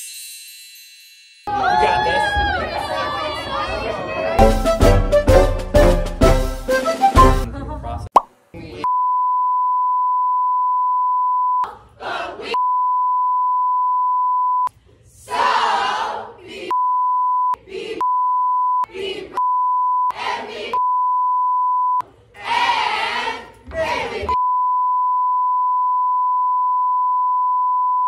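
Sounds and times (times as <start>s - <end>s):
group shouting and cheering: 1.5s - 5.6s, 15.3s - 16.6s, 22.4s - 24.4s
music: 4.4s - 7.5s
high-pitched censor bleep: 8.9s - 11.6s, 12.6s - 14.7s, 16.7s - 18.8s, 19.4s - 20.1s, 20.8s - 22.0s, 24.4s - 28.0s.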